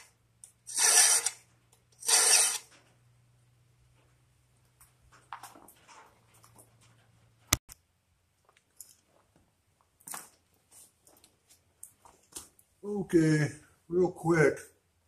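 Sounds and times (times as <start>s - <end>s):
handling rustles and clicks: 3.9s - 7.6s, 8.4s - 12.8s.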